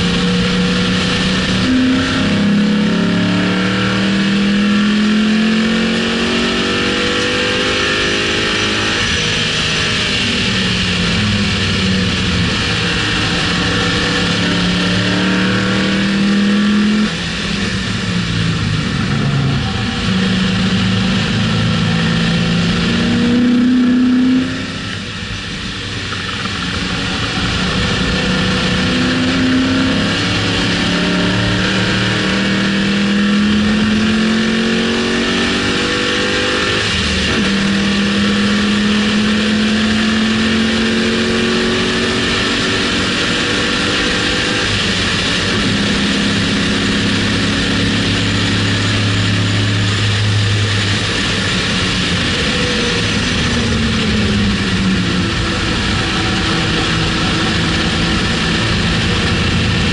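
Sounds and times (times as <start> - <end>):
car engine accelerating: 0.0 - 59.9
wind noise: 41.4 - 59.9.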